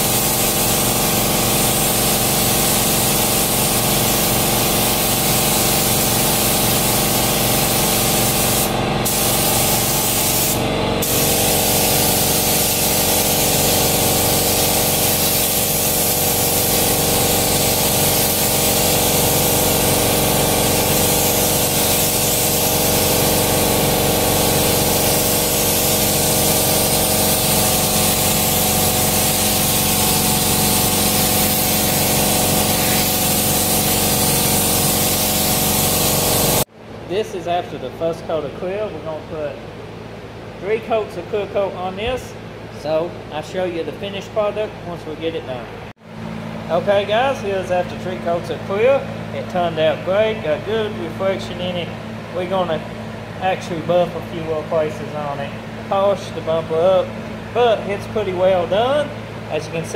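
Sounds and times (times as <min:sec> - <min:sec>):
spray gun hissing: 0:00.0 - 0:36.7
steady hum: 0:00.0 - 0:59.9.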